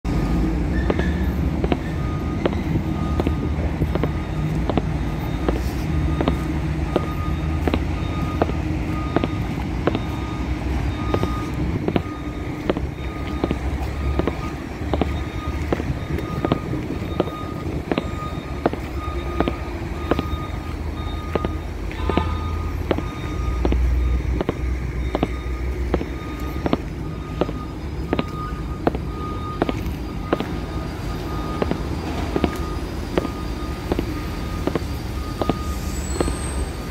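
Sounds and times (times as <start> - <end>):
heavy engine rumbling: 0.0 - 36.9
vehicle warning beeper: 0.1 - 36.9.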